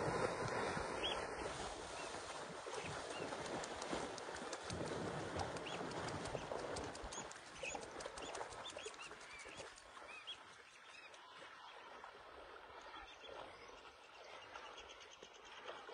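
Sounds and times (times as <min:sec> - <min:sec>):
soft wash of noise: 0:00.0 - 0:06.9
small birds chirping: 0:05.6 - 0:11.2.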